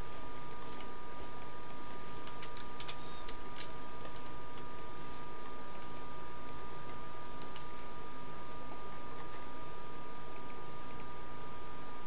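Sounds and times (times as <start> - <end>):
computer mouse clicks: 0.4 - 7.7, 10.4 - 11.1.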